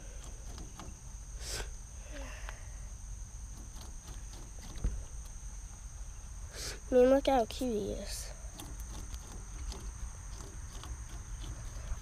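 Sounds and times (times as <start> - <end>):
crickets droning: 0.0 - 12.0
rabbit crunching celery: 3.4 - 5.5, 8.0 - 12.0.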